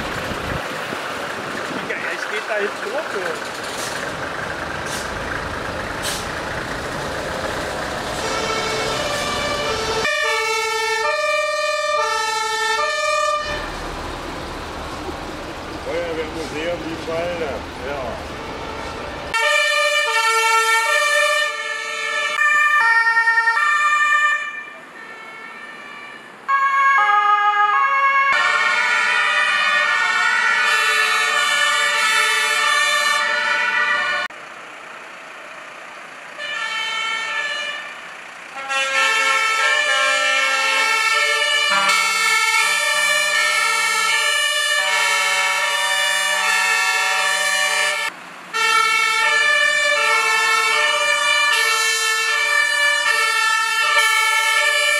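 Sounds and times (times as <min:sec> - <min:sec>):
two-tone fire engine sirens: 0:04.4 - 0:34.4, 0:35.8 - 0:54.9.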